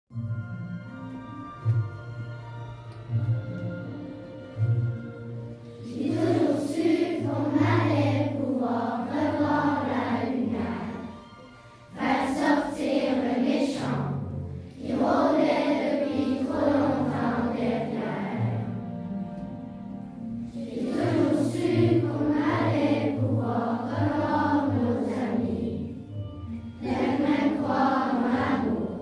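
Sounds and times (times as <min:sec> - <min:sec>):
instrumental accompaniment with bass: 0:00.1 - 0:12.5, 0:13.5 - 0:29.0
choir singing: 0:05.8 - 0:11.3, 0:11.9 - 0:19.0, 0:20.5 - 0:26.1, 0:26.8 - 0:29.0.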